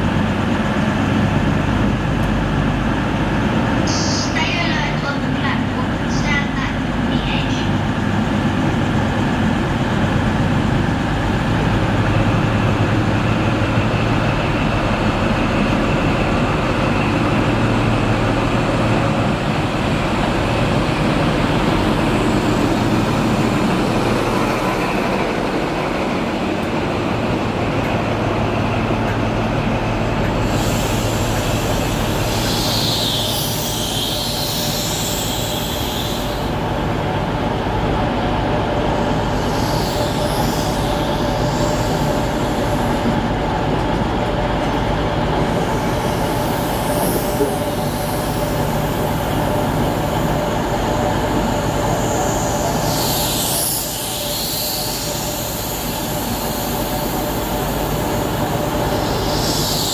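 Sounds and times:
diesel train engine drone: 0.0s - 59.9s
train brakes squealing and hissing: 30.4s - 36.6s, 39.3s - 43.0s, 51.5s - 59.9s.

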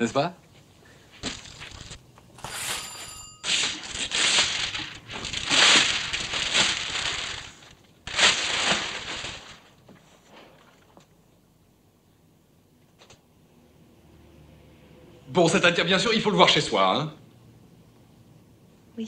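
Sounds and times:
wrapping paper tearing: 1.2s - 2.8s, 3.5s - 9.7s.

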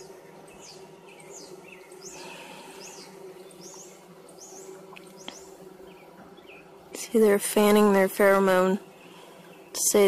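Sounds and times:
bird chirping: 0.0s - 6.8s
bees buzzing: 0.0s - 10.0s.

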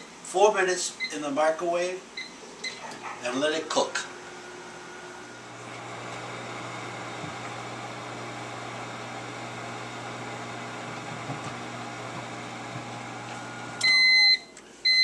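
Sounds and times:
microwave oven humming: 3.8s - 15.0s.

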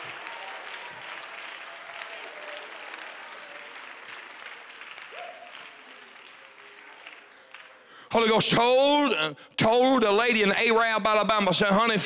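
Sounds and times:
crowd applauding: 0.0s - 8.3s.

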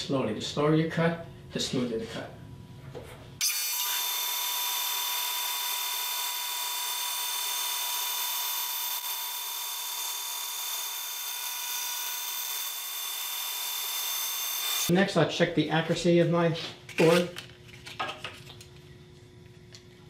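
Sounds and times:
band saw high-pitched whir: 3.4s - 14.9s.

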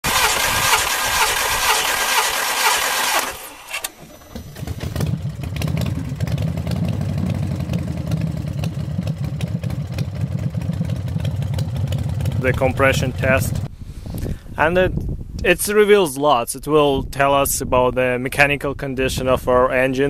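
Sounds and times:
engine cranking on starter: 0.0s - 8.7s
low steady rumble: 4.0s - 15.5s.

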